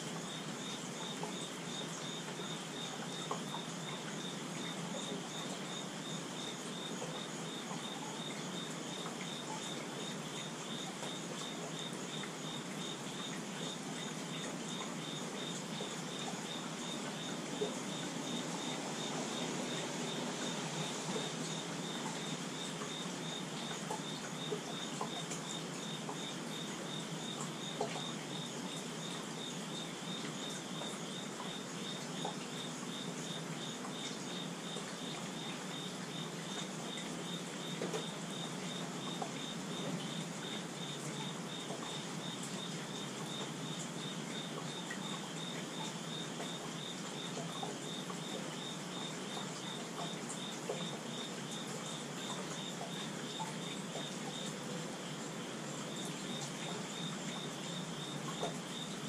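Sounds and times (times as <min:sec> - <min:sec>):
steady rainfall hiss: 0:00.0 - 0:59.0.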